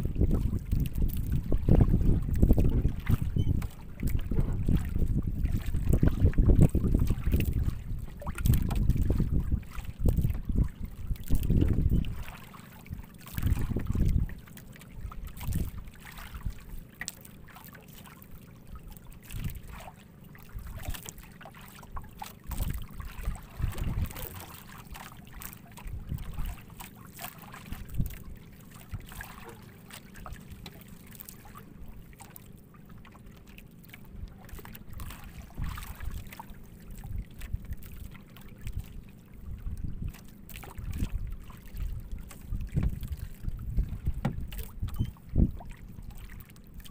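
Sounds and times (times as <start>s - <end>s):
wind buffeting microphone: 0.0s - 12.3s, 12.9s - 14.4s, 15.1s - 16.6s, 22.5s - 24.5s, 25.8s - 26.6s, 38.6s - 40.2s, 40.8s - 46.1s
water sloshing against boat hull: 0.0s - 46.9s.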